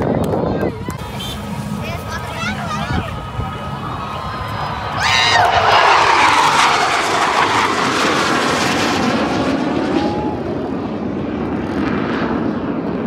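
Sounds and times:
jet aircraft roar: 0.0 - 13.0.

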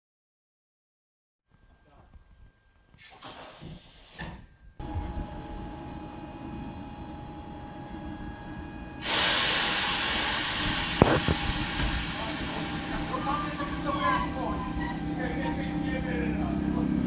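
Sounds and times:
electric locomotive hum: 1.5 - 17.0
loud air hiss: 3.1 - 4.3, 9.0 - 14.6.

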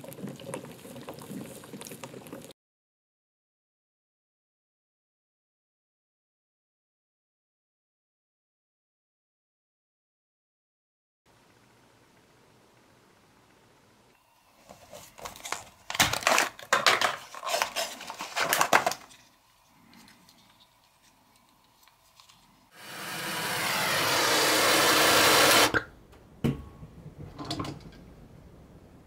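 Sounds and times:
cardboard box crinkling and rustling: 14.8 - 19.4
torch flame hissing: 22.7 - 25.8.

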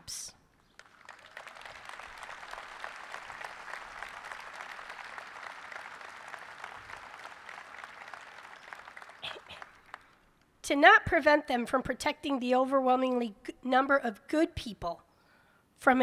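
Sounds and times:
audience applauding: 0.8 - 10.2.

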